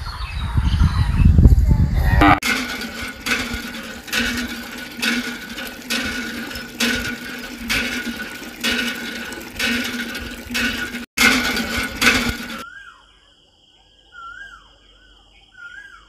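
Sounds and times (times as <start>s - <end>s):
water spurting into a basin: 2.3s - 12.6s.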